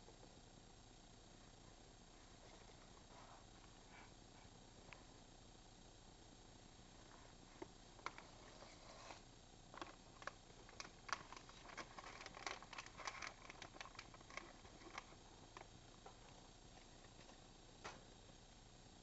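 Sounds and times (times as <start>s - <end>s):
rats scrabbling in bedding: 7.0s - 17.5s.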